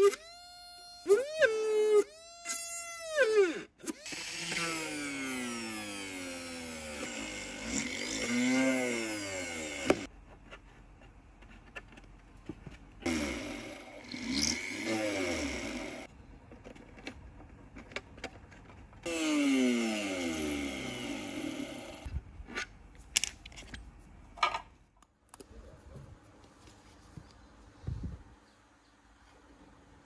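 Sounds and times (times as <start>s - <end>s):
rotary tool drilling wood: 0.0s - 10.1s, 13.0s - 16.1s, 19.0s - 22.1s.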